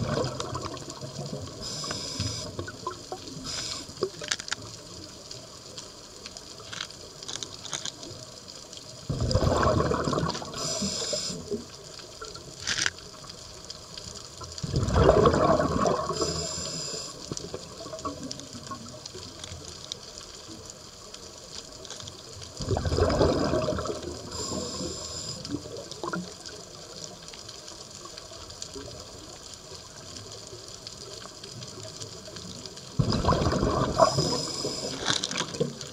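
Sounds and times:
exhaled bubbles rushing underwater: 0.0s - 4.2s, 8.9s - 12.5s, 13.2s - 19.4s, 22.5s - 27.2s, 28.0s - 35.9s
regulator hiss: 1.6s - 2.6s, 3.3s - 4.2s, 10.5s - 11.6s, 16.1s - 17.3s, 24.2s - 25.6s, 34.0s - 35.3s.

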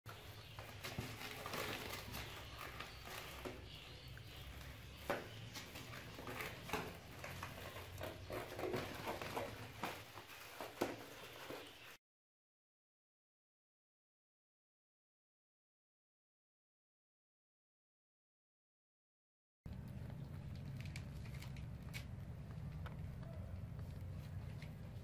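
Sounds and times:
kittens rustling on crinkly foil: 0.1s - 12.0s.

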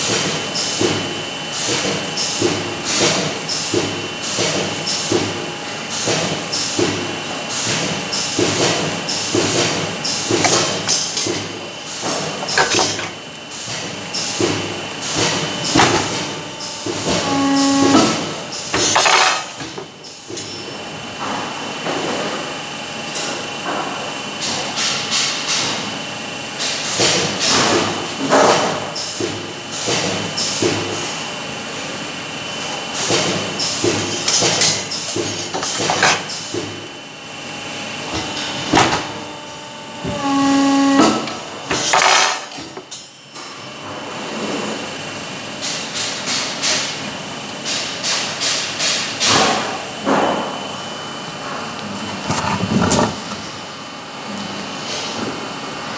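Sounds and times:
short pitched tone: 17.2s - 18.3s.

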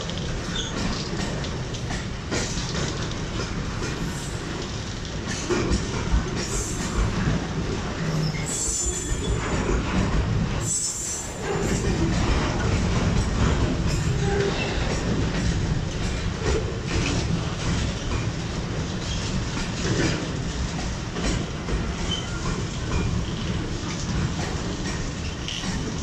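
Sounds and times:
clatter over rail joints: 0.0s - 26.0s
steel wheels rumbling on track: 0.0s - 26.0s.

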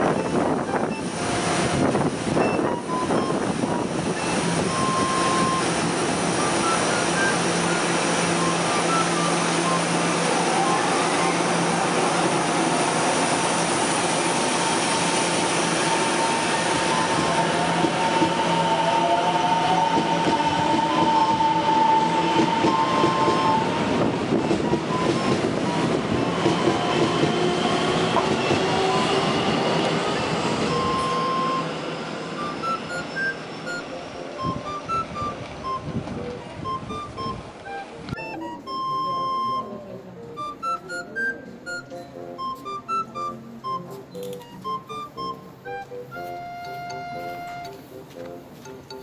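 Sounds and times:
train wheels on rails: 0.0s - 39.3s, 40.2s - 49.0s.

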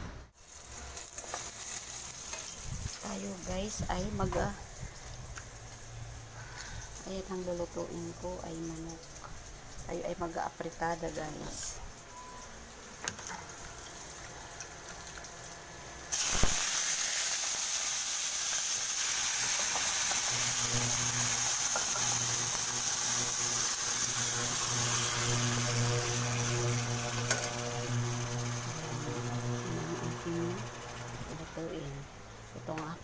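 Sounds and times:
chicken sizzling in a wok: 0.4s - 31.8s
low steady hum: 20.3s - 33.0s.

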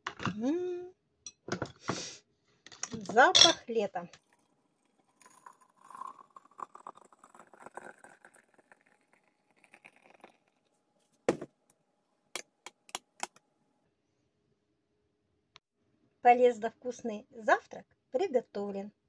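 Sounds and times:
water pouring into teapot: 4.2s - 10.7s.

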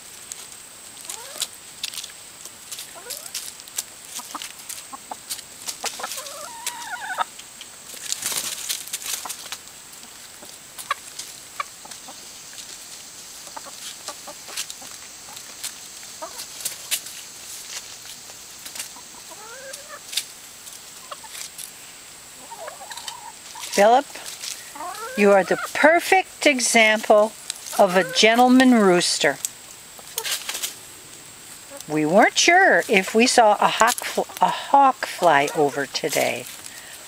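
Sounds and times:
rustling: 0.0s - 37.0s
chicken calls: 1.0s - 1.6s, 2.8s - 37.0s
chickens clucking: 1.0s - 37.0s.

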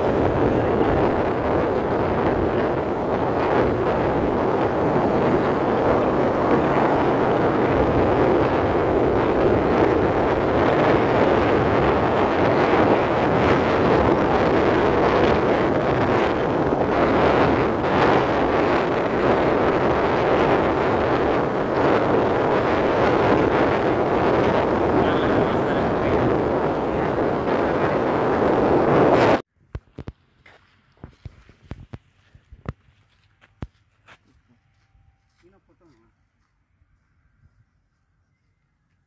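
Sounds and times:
vehicle running noise: 0.0s - 29.4s
wind rush over microphone: 0.0s - 30.1s.

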